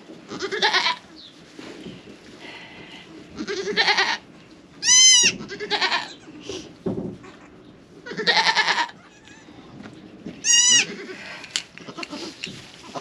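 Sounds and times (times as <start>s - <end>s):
goats bleating: 0.3s - 1.0s, 2.8s - 4.2s, 4.8s - 6.3s, 8.1s - 9.5s, 10.4s - 13.0s.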